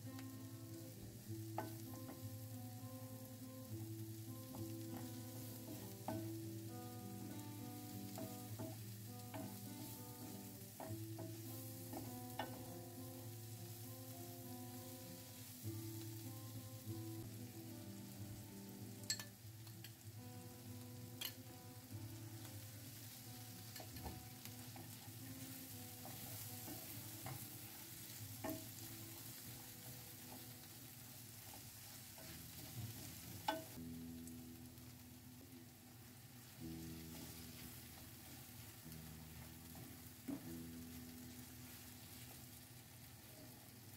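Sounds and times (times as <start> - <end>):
background music: 0.0 - 30.8
onions sizzling in oil: 0.0 - 43.9
spatula knocking against pan: 7.7 - 12.9, 28.4 - 28.9.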